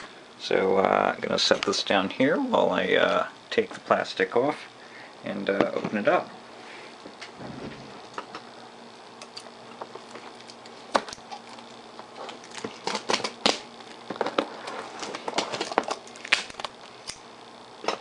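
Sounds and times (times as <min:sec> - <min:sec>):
plastic shrink-wrap crinkling: 0:11.2 - 0:16.9.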